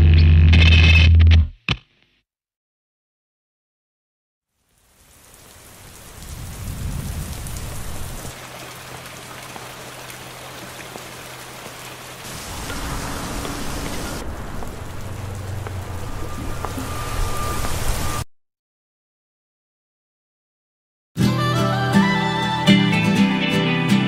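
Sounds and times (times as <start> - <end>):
steady rain: 4.5 - 18.2.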